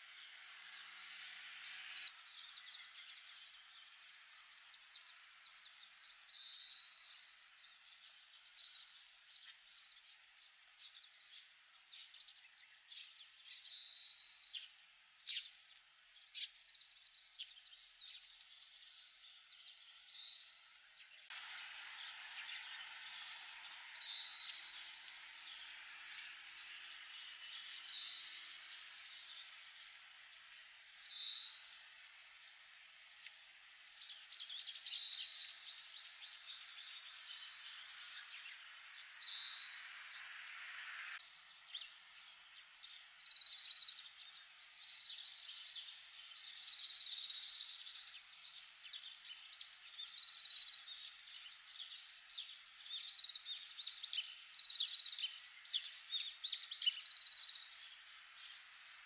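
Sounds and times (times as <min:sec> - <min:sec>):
finch singing: 0:00.1 - 0:40.3, 0:41.7 - 0:59.0.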